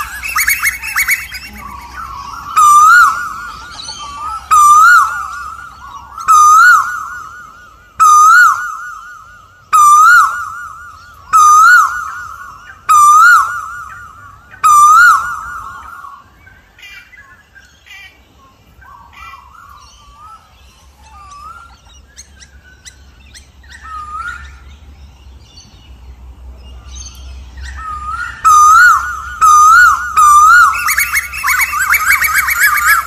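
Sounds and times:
koel calling: 0:00.0 - 0:08.8, 0:28.2 - 0:33.0.

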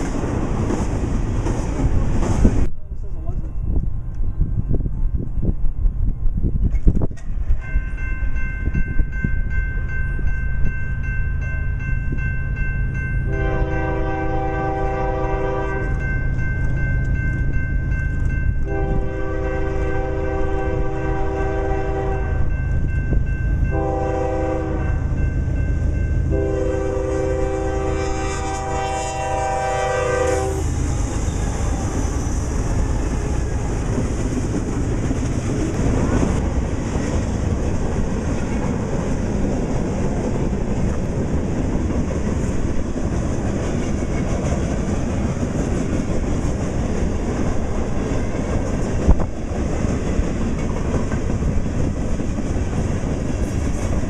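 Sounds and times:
diesel locomotive engine rumble: 0:00.0 - 0:54.0
locomotive air horn: 0:13.3 - 0:16.1, 0:18.6 - 0:22.5, 0:23.7 - 0:25.0, 0:26.3 - 0:31.3
freight cars wheels on rails: 0:30.2 - 0:54.0.

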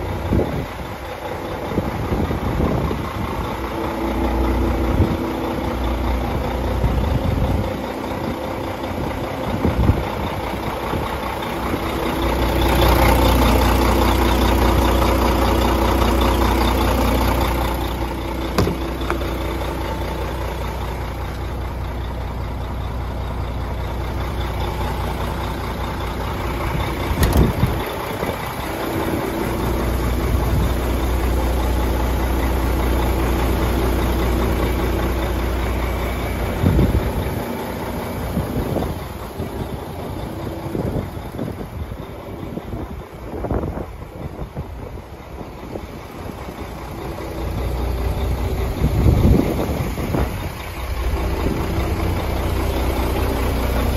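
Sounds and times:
diesel truck engine idling: 0:00.0 - 0:53.9
sharp knocks: 0:18.6 - 0:19.3.

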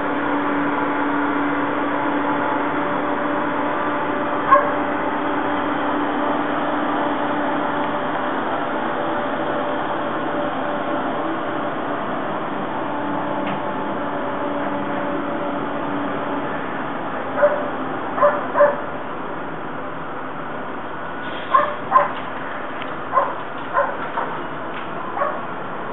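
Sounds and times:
steady background hum: 0:00.0 - 0:25.9
dogs barking: 0:04.5 - 0:04.8, 0:17.4 - 0:18.9, 0:21.5 - 0:22.2, 0:23.1 - 0:24.4, 0:25.1 - 0:25.5.

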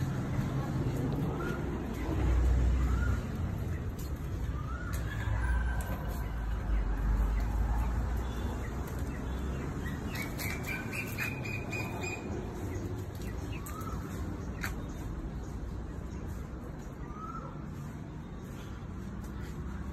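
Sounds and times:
birds chirping: 0:00.0 - 0:19.9.

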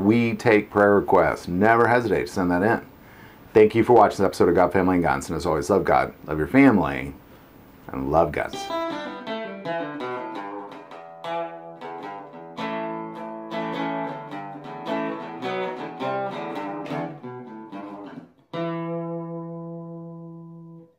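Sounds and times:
acoustic guitar melody: 0:08.4 - 0:20.9.

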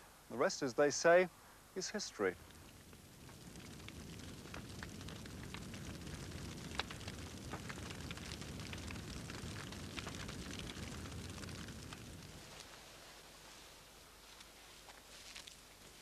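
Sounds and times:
crackles and clicks: 0:01.8 - 0:16.0
low rumble: 0:02.3 - 0:13.1.

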